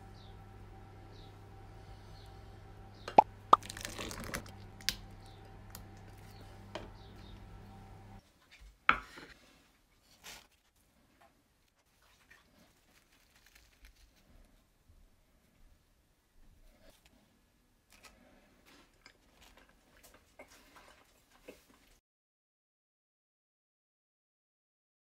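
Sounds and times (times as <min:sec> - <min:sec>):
steady hum: 0:00.0 - 0:08.2.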